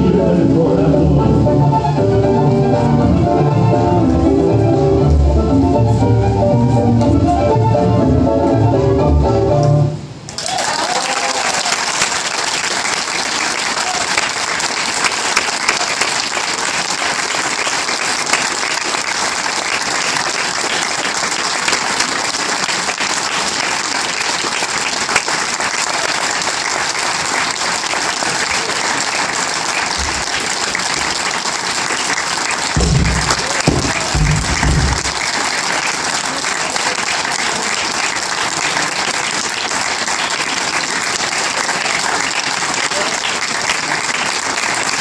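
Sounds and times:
recorded tango music: 0:00.0 - 0:10.2, 0:32.7 - 0:35.8
audience applause: 0:10.3 - 0:45.0.

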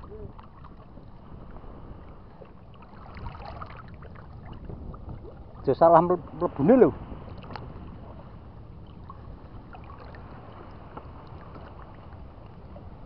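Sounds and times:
water sloshing around a wader: 0:00.0 - 0:13.0
faint small splashes: 0:02.3 - 0:05.7, 0:07.2 - 0:07.9, 0:08.8 - 0:12.7.

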